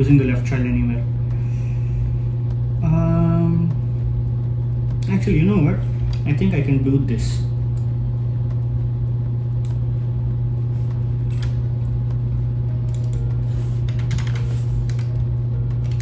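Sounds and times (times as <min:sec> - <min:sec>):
steady low hum: 0:00.0 - 0:16.0
laptop keyboard keys clicking: 0:12.8 - 0:16.0.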